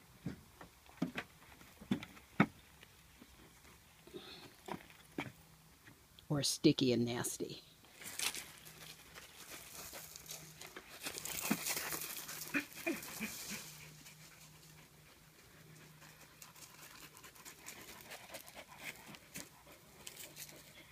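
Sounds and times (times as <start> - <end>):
paws scuffing on gravel: 8.0 - 14.2
dog panting: 11.3 - 20.9.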